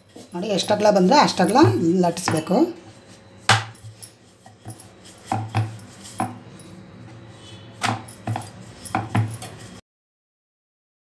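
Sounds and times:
rolling pin rolling dough: 0.1 - 9.8
rolling pin knocking on wood: 3.5 - 3.8, 4.7 - 6.4.

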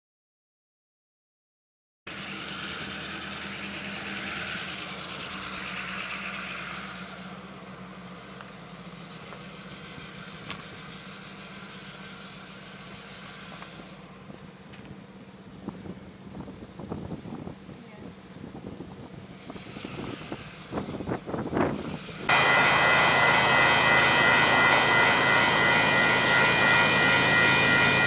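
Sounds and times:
motor vehicle hum: 2.1 - 28.0
hiss: 19.4 - 28.0.

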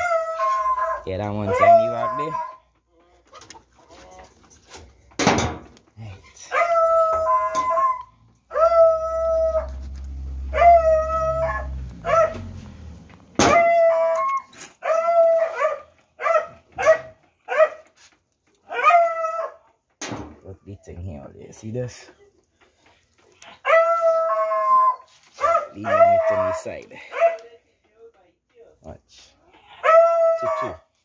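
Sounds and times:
dog howling: 0.0 - 2.6, 6.4 - 12.6, 13.5 - 17.0, 18.6 - 19.7, 23.5 - 27.4, 29.7 - 30.9.

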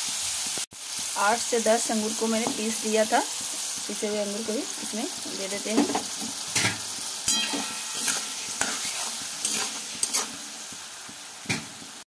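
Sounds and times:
grapes sizzling in hot oil: 0.0 - 12.0
spatula scraping and clinking on pan: 5.8 - 10.7.

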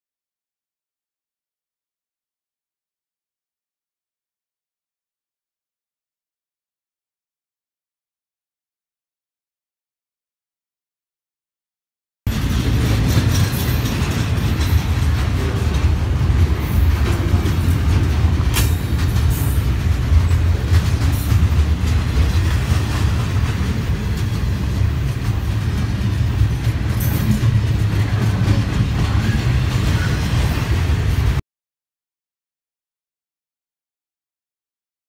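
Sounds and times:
freight train rumbling on rails: 12.3 - 31.4.

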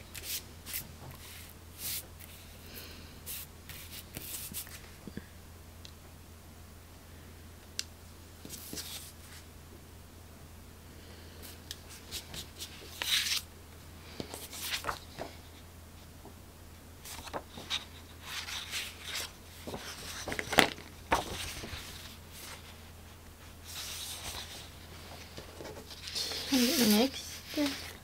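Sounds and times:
paper rustling and scraping: 11.9 - 13.5, 14.2 - 15.4, 17.0 - 22.8, 23.6 - 28.0.

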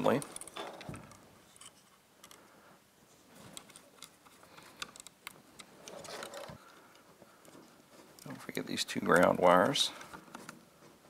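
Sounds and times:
rustling: 0.0 - 11.0
plastic and metal parts clicking: 3.5 - 8.4.

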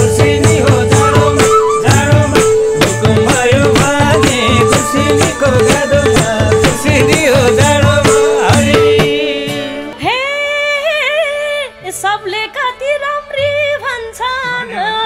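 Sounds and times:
folk band playing: 0.0 - 10.2
woman singing: 0.0 - 15.0.

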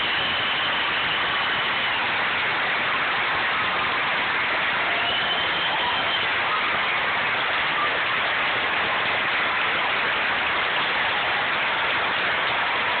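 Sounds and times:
large crowd applauding: 0.0 - 13.0.

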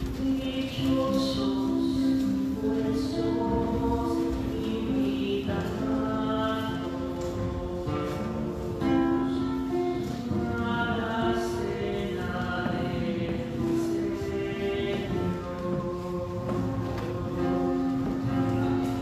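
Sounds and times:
hymn sung with accompaniment: 0.2 - 19.0.

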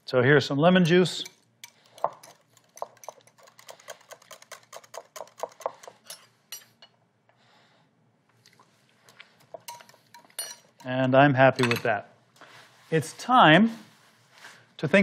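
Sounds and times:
whisk clicking against glass bowl: 0.8 - 6.2.

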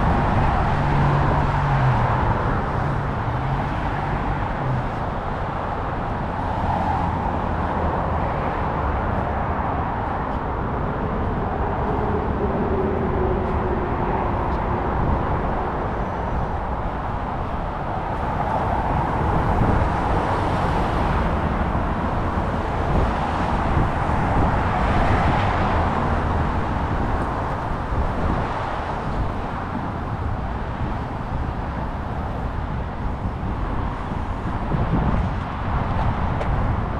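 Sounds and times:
road traffic noise: 0.0 - 36.9.

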